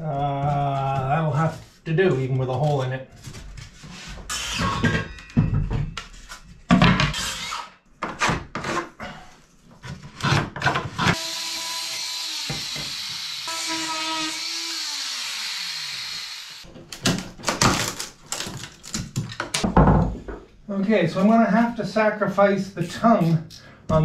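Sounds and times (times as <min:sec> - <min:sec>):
electric power tool motor: 0:11.2 - 0:16.6.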